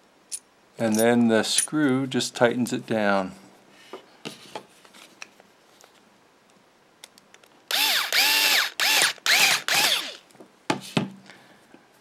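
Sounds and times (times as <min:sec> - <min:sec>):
electric screwdriver motor whirring: 0:07.7 - 0:10.2.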